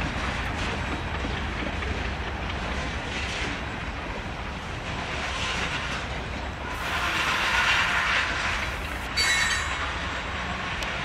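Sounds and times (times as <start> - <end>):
train wheels rumbling on track: 0.0 - 11.0
high-pitched wheel squeal: 6.6 - 9.9.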